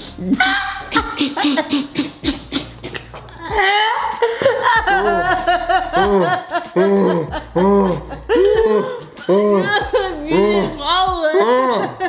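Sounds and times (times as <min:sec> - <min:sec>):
hearty laughter: 0:03.4 - 0:10.7.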